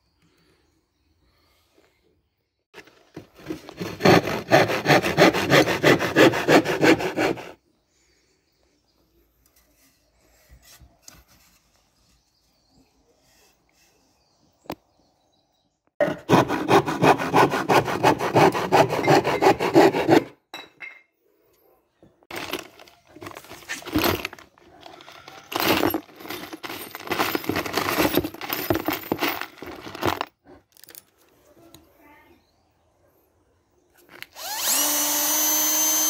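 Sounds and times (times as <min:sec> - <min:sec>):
saw cutting wood: 0:02.8 - 0:07.6, 0:16.0 - 0:20.4, 0:34.2 - 0:36.0
screws rattling in plastic tub: 0:22.3 - 0:31.0.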